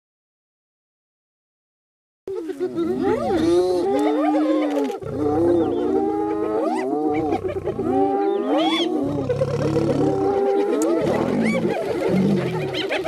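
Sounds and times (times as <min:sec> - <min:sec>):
hyenas whooping and giggling: 0:02.3 - 0:13.0
hyenas growling: 0:02.7 - 0:13.0.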